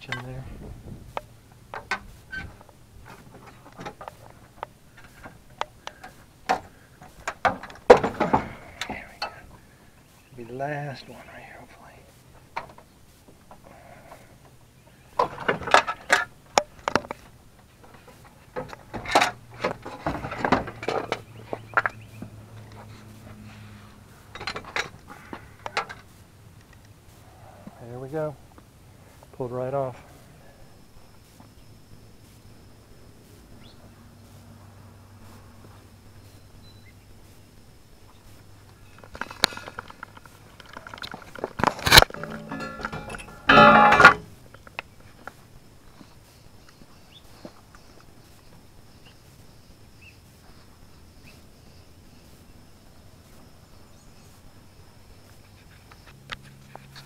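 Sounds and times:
metal hitch clattering: 1.7 - 9.4, 18.0 - 21.9, 40.6 - 44.4
tools knocking and scraping: 40.6 - 44.4
hand tools clicking: 40.7 - 44.3
low steady hum: 41.8 - 44.6.

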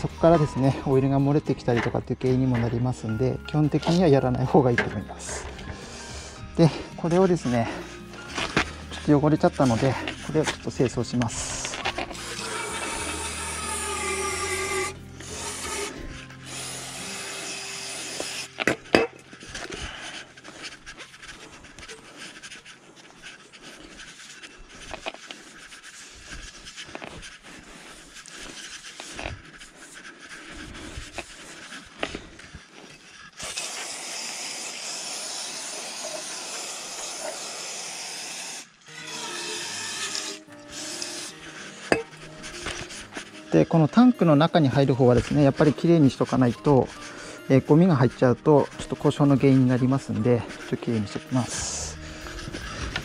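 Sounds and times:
background music: 0.0 - 22.6, 38.8 - 53.0
rubbing and scraping by hand: 0.0 - 37.7, 39.5 - 53.0
steady hiss: 33.4 - 38.8.

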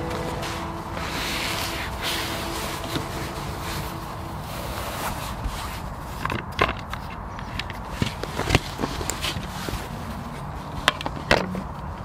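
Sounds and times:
fabric and padding rustling: 0.0 - 6.5.

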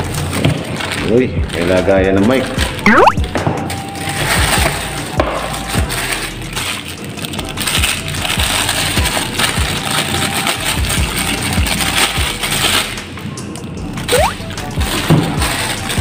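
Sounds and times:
plastic bag crinkling: 5.9 - 13.0.

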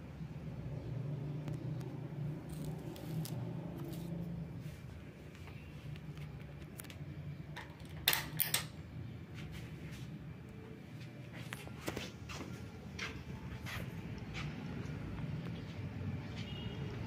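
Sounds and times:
electric fans humming: 0.0 - 17.0.

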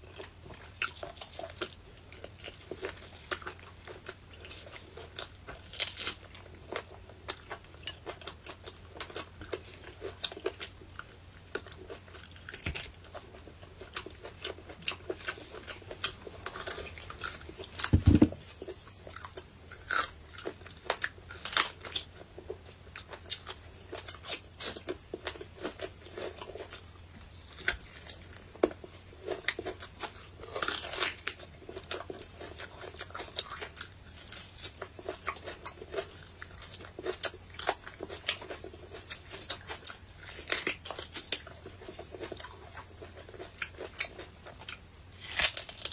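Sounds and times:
person chewing and biting: 0.0 - 45.9
low thump: 18.0 - 18.4.

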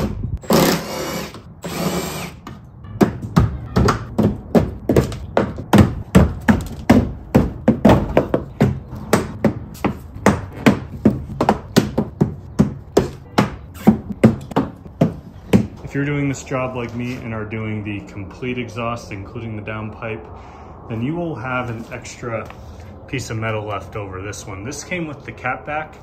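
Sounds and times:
power screwdriver running: 0.4 - 2.4.

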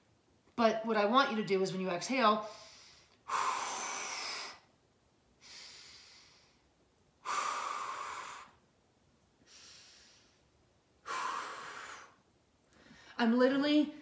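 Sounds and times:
quiet breath: 2.4 - 4.7, 5.4 - 8.6, 9.4 - 13.2
woman forcefully exhaling: 2.4 - 4.7, 7.2 - 8.6, 11.0 - 12.2.

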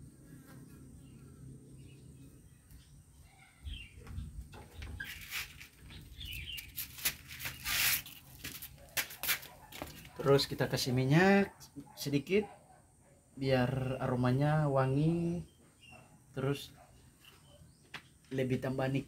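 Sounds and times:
rustles: 3.9 - 10.2
faint bird chirps: 15.4 - 18.4.

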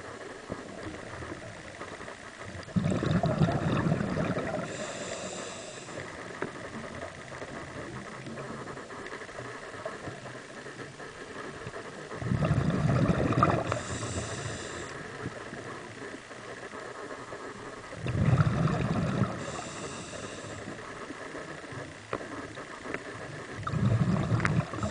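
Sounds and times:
low hiss of water noise: 0.0 - 24.9
exhaled bubbles underwater: 2.5 - 6.0, 11.6 - 15.8, 17.9 - 20.8, 23.4 - 24.9
regulator high hiss: 4.5 - 6.4, 13.6 - 16.1, 19.3 - 20.9.

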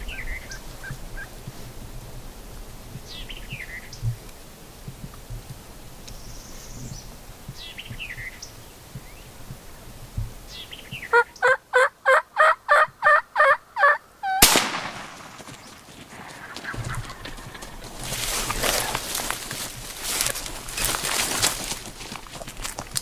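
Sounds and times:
turkey yelps: 11.1 - 14.5, 16.3 - 19.0
shotgun shot with echo: 14.4 - 16.3.

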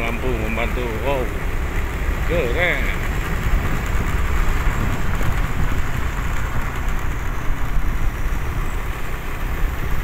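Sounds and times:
vehicle road rumble: 0.0 - 10.0
wind on microphone: 3.4 - 8.7.

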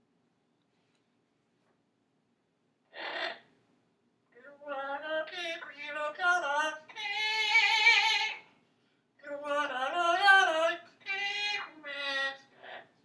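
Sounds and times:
parrot singing: 2.9 - 3.5, 4.6 - 8.4, 9.2 - 12.9.

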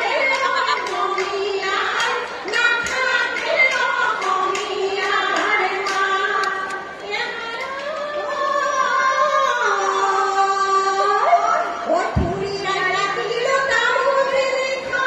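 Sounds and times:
woman singing: 0.0 - 15.0.

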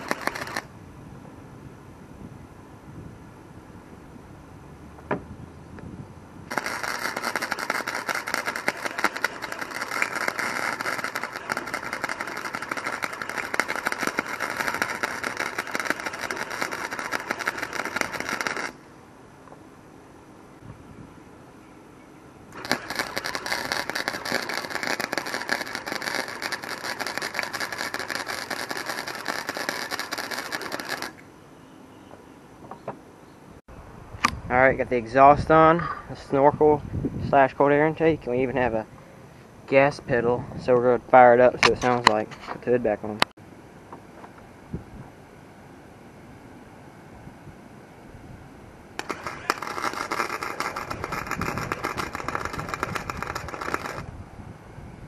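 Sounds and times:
welder arc crackling: 0.0 - 0.7, 6.5 - 18.8, 22.5 - 31.2, 49.0 - 54.1.

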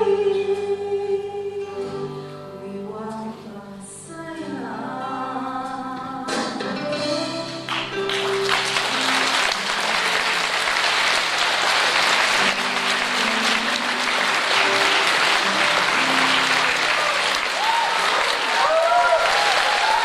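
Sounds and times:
instrumental music with held notes: 0.0 - 18.3
audience applauding: 7.7 - 20.0.

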